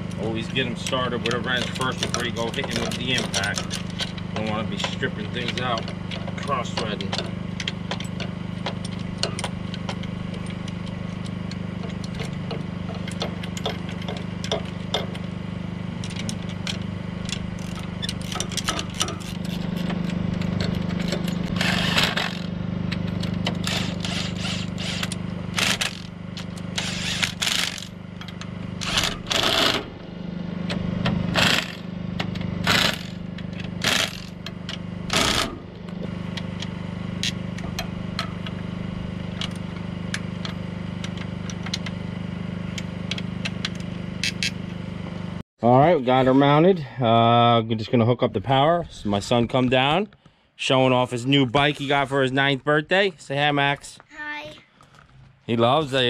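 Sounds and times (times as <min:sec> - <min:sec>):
steady low hum: 0:00.0 - 0:56.0
impact wrench rattling: 0:00.4 - 0:15.3, 0:16.1 - 0:22.5, 0:23.1 - 0:30.0, 0:30.7 - 0:38.6.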